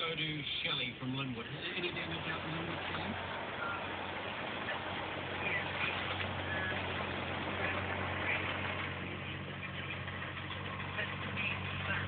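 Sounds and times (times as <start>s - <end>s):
car engine low hum: 0.0s - 12.0s
tyres hissing on wet road: 0.6s - 9.9s.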